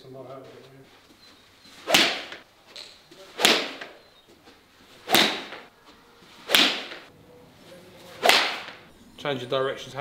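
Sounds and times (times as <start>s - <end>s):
golf club swing whoosh: 1.8s - 2.4s, 5.0s - 5.7s, 8.2s - 8.9s.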